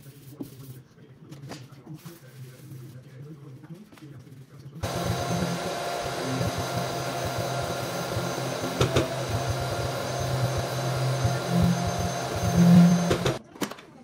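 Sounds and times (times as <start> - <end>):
small motor whining: 4.8 - 13.4.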